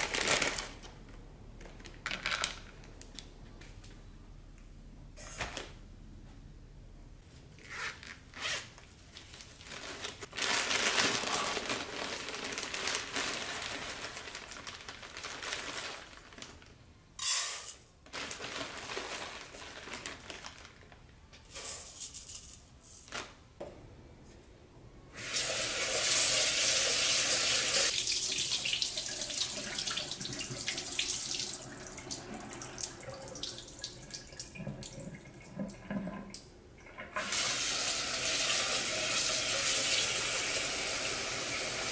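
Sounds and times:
rice sack rustling: 9.2 - 16.6, 18.1 - 20.9
rice being rinsed: 25.2 - 41.9.

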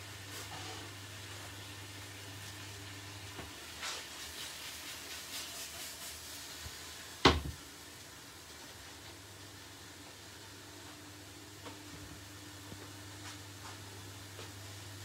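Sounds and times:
pan knocking on glass hob: 7.2 - 7.6.

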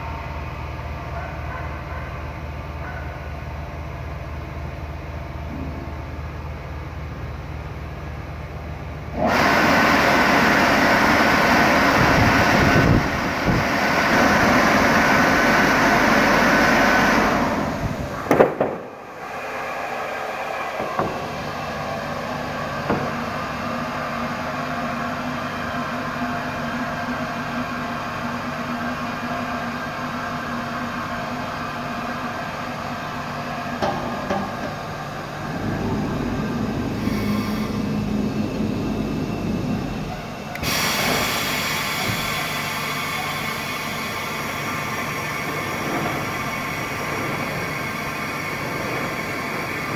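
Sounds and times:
loud rush of air: 9.2 - 23.8, 35.3 - 43.0
machine humming: 34.7 - 41.7.

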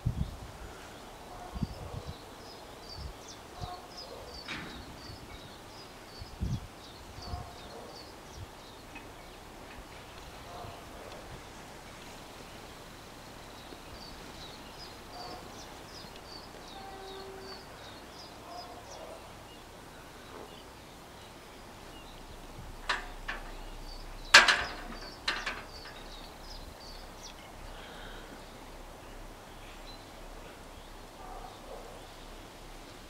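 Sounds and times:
birds chirping: 0.7 - 33.0
sharp metal clunks: 4.4 - 5.5, 22.4 - 26.3.

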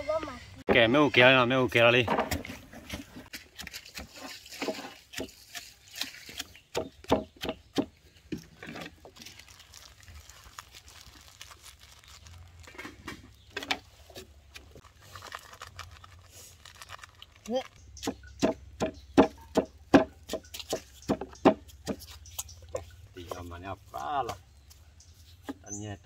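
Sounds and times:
stone pestle pounding in mortar: 6.3 - 7.9, 18.0 - 22.1.

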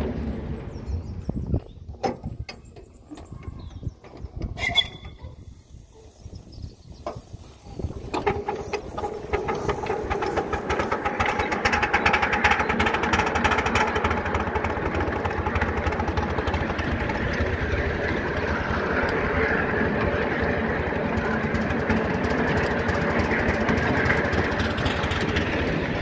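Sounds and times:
steam locomotive chuffing: 4.7 - 26.0.

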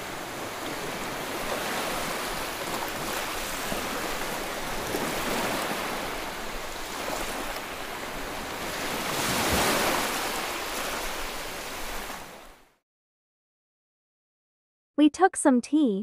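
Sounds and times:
water rushing past boat hull: 0.0 - 12.7.

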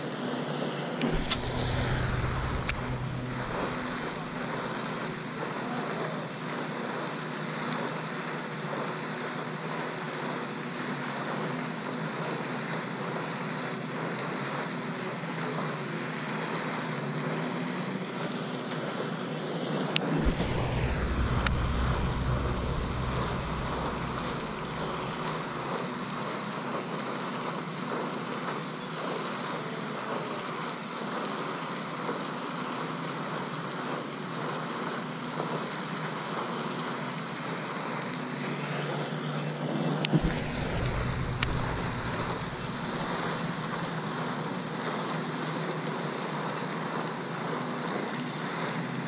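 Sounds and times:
low buffeting gust: 1.0 - 5.2, 20.0 - 26.2, 40.2 - 43.7
wind on microphone: 1.0 - 5.2, 20.1 - 26.1, 40.2 - 43.7.

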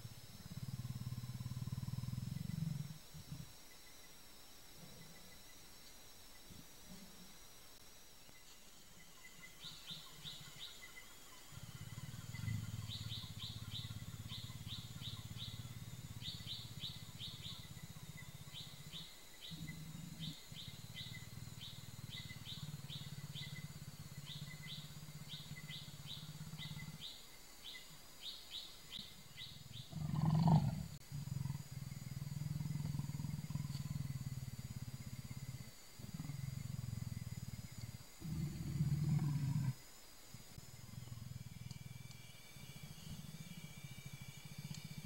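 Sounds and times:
insects chirping: 0.0 - 45.0
leopard growling: 0.4 - 3.5, 9.6 - 27.2, 29.2 - 39.8, 40.5 - 45.0.

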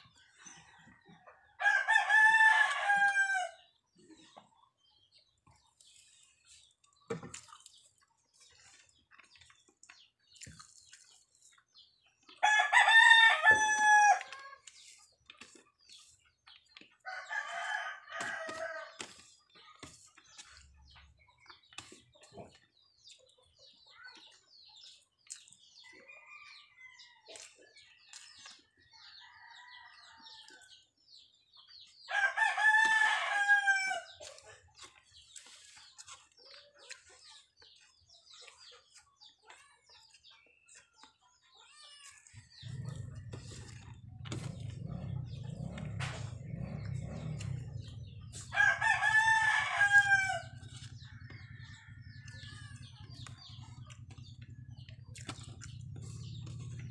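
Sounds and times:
rooster crowing: 12.4 - 14.3, 48.5 - 50.5.

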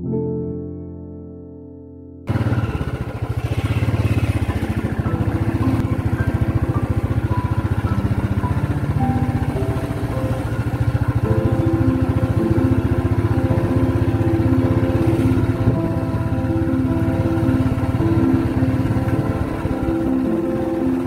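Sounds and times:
motorcycle engine running: 2.3 - 21.0.

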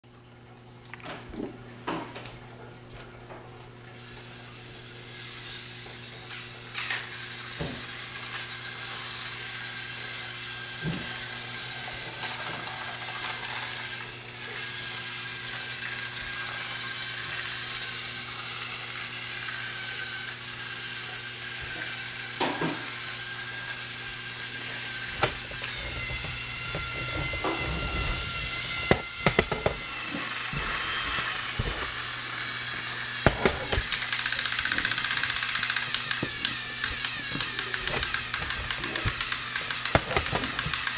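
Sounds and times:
toy train motors whirring: 4.0 - 40.9
fast clicking rattle: 33.7 - 40.9.

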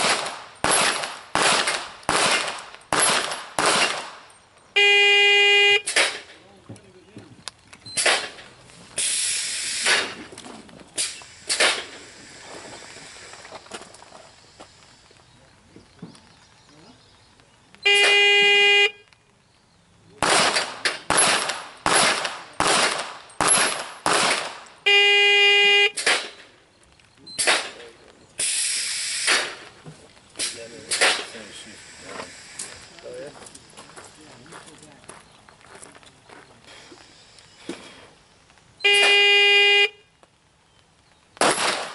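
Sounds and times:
pistol shots hitting steel: 0.0 - 4.3, 5.8 - 6.4, 7.9 - 8.5, 11.0 - 12.0, 20.2 - 24.6, 26.0 - 26.5, 27.4 - 27.9, 30.4 - 31.3, 41.4 - 41.9.

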